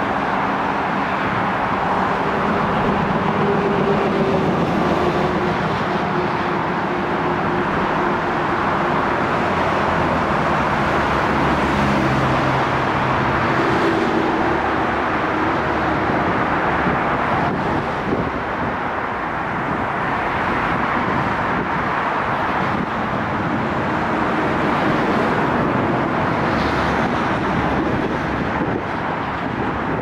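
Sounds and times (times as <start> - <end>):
city traffic noise: 0.0 - 30.0
distant electric train: 0.9 - 16.9.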